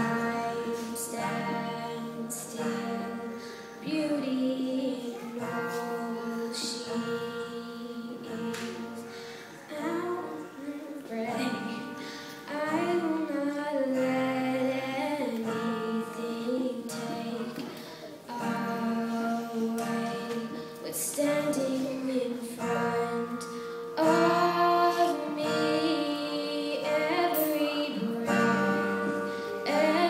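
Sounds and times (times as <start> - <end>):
acoustic guitar: 0.0 - 30.0
girl singing into a microphone: 0.0 - 30.0.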